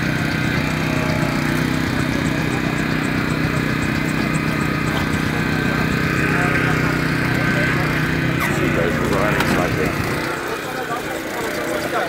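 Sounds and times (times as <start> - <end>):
small petrol engine running: 0.0 - 12.0.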